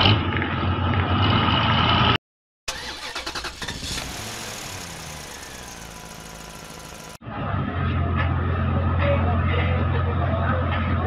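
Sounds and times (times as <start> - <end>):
engine starting with a rattle: 2.7 - 7.2
diesel truck engine running: 2.7 - 10.3.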